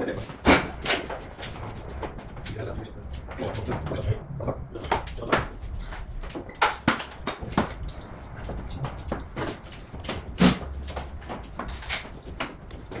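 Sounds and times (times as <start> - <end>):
metal tools clinking on cart: 4.8 - 13.0.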